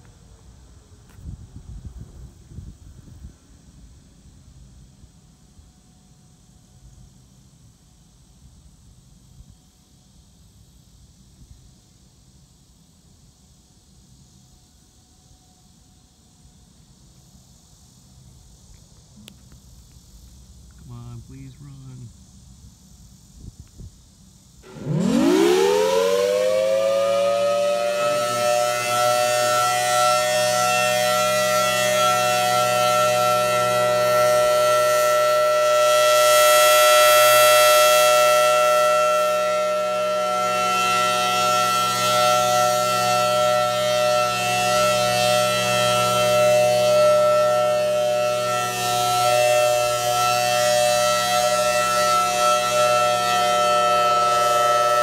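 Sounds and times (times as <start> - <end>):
warning siren winding up: 24.6 - 55.0.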